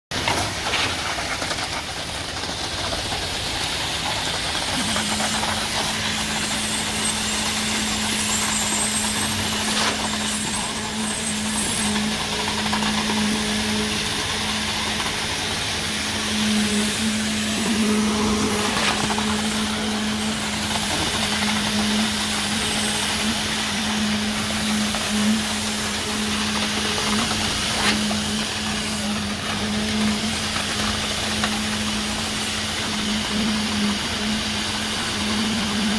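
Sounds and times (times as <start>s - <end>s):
machinery engine drone: 0.2s - 35.9s.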